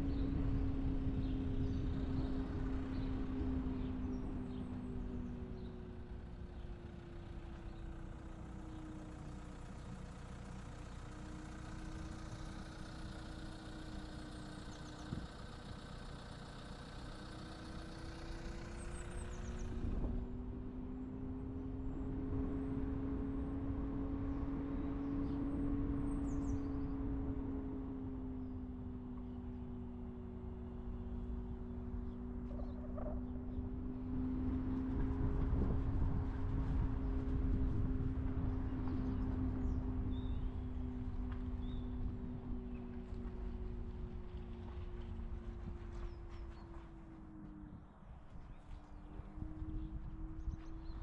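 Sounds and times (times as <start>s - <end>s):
car engine hum: 0.0s - 51.0s.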